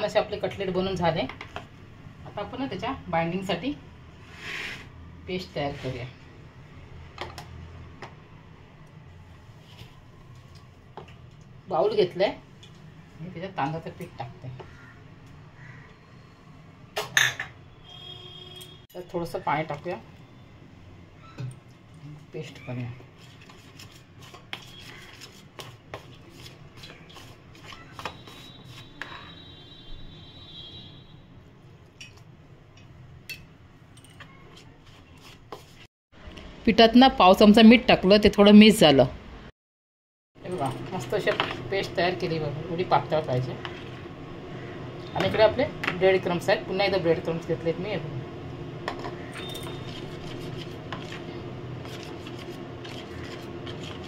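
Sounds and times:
wet scraping in bowl: 0:49.4 - 0:54.0.

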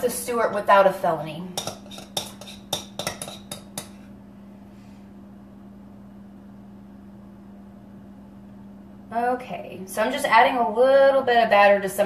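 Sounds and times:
steady low hum: 0:00.0 - 0:12.0
utensil clinking against dish: 0:01.6 - 0:04.0.

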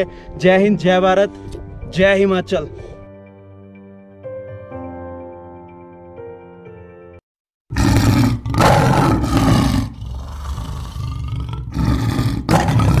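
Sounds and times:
soft background music: 0:00.0 - 0:07.2
rough roar sound effect: 0:07.7 - 0:13.0.

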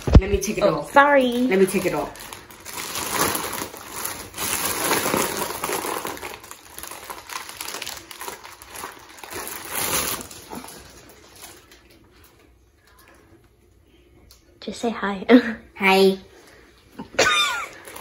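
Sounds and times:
foil balloon crinkling: 0:00.0 - 0:12.2, 0:17.6 - 0:18.0.

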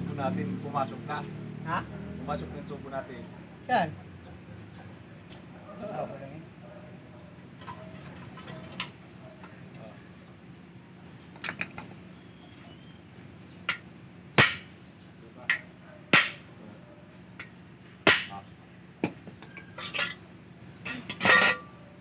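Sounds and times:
metal-on-metal knocks: 0:18.1 - 0:18.4, 0:20.9 - 0:21.7.

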